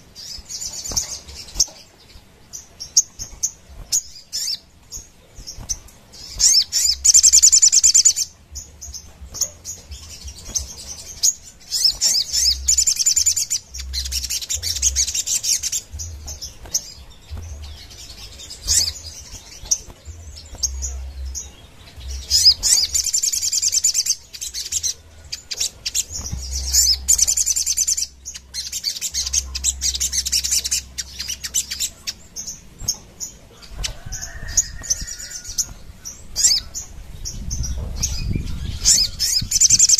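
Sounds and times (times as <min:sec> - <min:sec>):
bird singing high chattering notes: 0:00.0 - 0:39.9.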